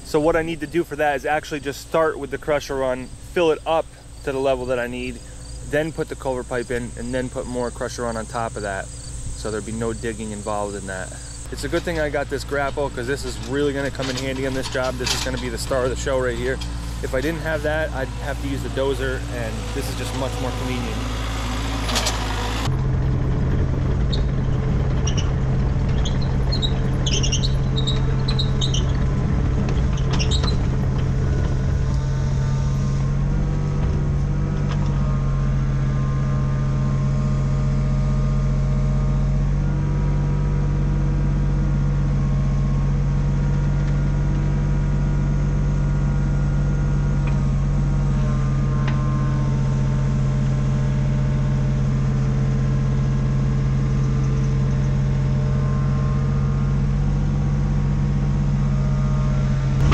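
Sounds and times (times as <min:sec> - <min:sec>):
diesel engine droning: 0:00.0 - 0:59.9
high squeaks: 0:24.0 - 0:33.7.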